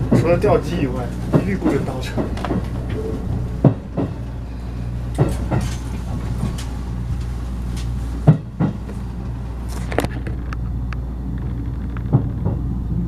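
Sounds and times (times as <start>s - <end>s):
train low drone: 0.0s - 13.0s
sharp clunks: 5.1s - 6.7s, 8.2s - 9.0s.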